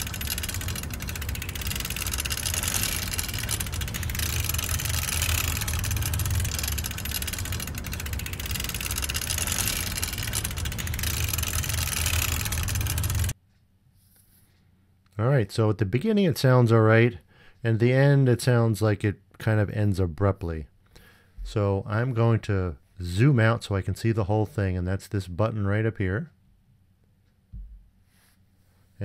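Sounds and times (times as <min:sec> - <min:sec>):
motor running with rattle: 0:00.0 - 0:13.4.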